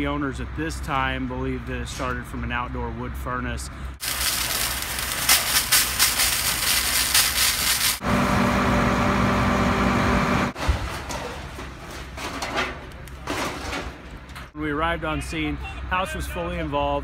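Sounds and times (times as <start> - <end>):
fire engine motor and pump: 3.8 - 12.4
fire hose spraying water: 4.0 - 8.0.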